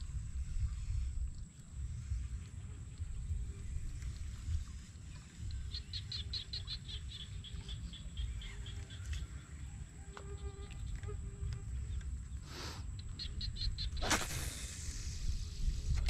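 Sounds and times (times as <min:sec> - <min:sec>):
wind on microphone: 0:00.0 - 0:07.7, 0:13.0 - 0:16.0
rapid chirping call: 0:13.0 - 0:14.4
short rushing noises: 0:14.0 - 0:15.2.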